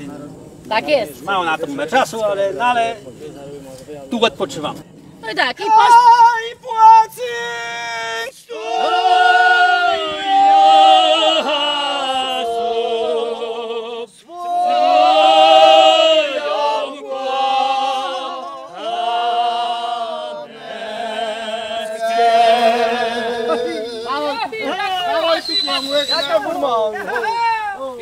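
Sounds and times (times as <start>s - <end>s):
men singing unaccompanied: 7.6s - 26.7s.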